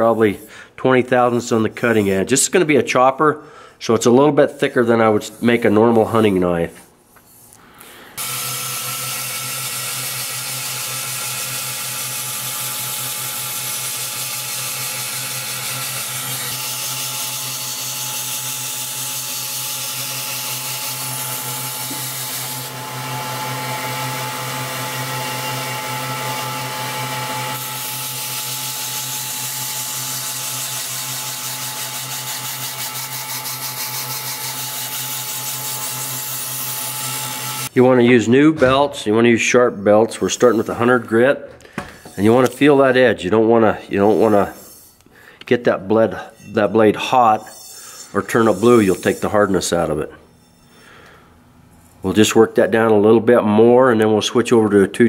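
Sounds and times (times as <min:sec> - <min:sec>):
belt grinder motor hum: 0:08.2 - 0:37.8
abrasive hissing on steel: 0:47.4 - 0:49.3.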